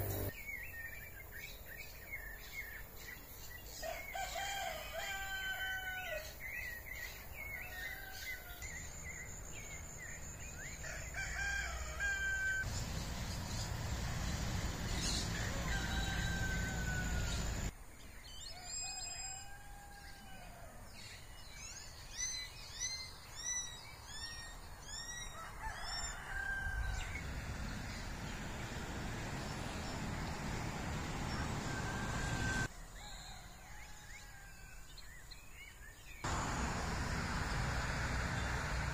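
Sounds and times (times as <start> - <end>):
low noisy rumble: 0.0 - 0.3, 12.7 - 17.7, 26.6 - 32.7, 36.3 - 38.9
roosters crowing: 3.8 - 6.4, 7.6 - 8.9, 10.5 - 17.7, 18.6 - 20.8, 25.3 - 34.7, 36.3 - 38.9.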